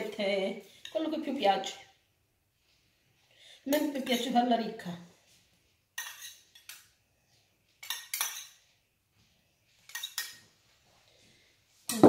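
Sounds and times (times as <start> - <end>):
utensils clinking against dishes: 6.0 - 6.8, 7.8 - 8.6, 9.9 - 10.5.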